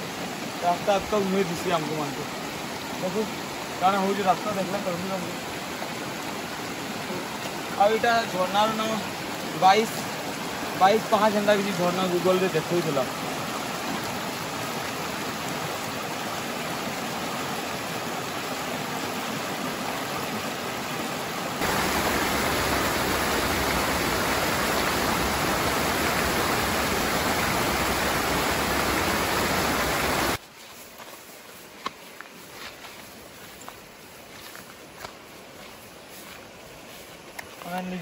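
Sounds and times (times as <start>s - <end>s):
waterfall rushing: 0.0s - 30.4s.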